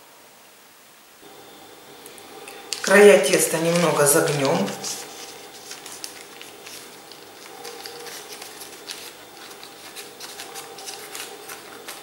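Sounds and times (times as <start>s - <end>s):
baking paper crinkling: 2.5s - 12.0s.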